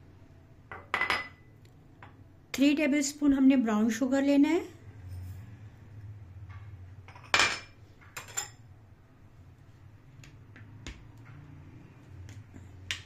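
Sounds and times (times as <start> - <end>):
low steady hum: 0.0 - 13.0
glass bowls and spoon clinking: 7.1 - 8.6.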